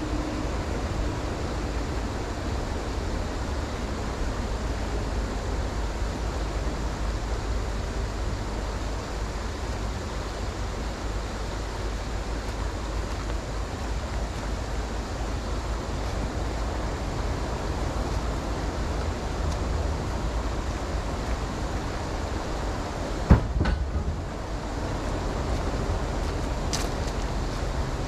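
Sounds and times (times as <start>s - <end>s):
creek running over rapids: 0.0s - 28.0s
sharp knock: 23.3s - 24.1s.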